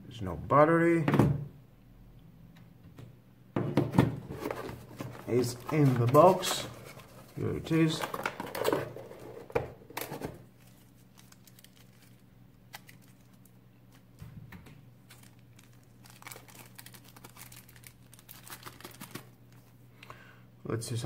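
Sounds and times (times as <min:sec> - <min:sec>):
packaging crinkling: 0:04.3 - 0:14.2, 0:15.0 - 0:19.7.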